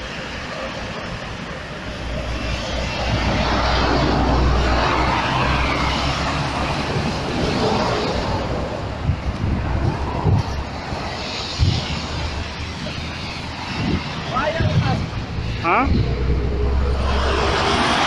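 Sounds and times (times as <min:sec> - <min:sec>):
diesel truck engine roaring: 0:00.0 - 0:18.0.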